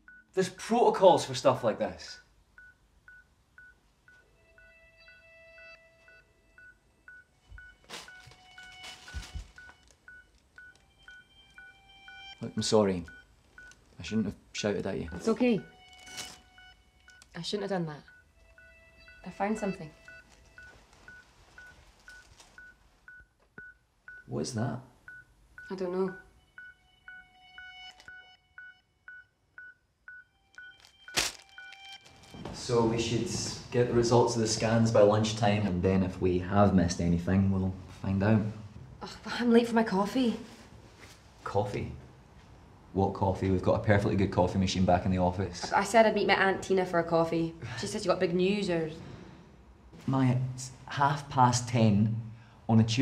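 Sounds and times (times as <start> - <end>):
held electronic tones: 2.6 - 24.3, 25.1 - 33.1
short electronic beeps: 18.0 - 24.2, 25.1 - 32.1.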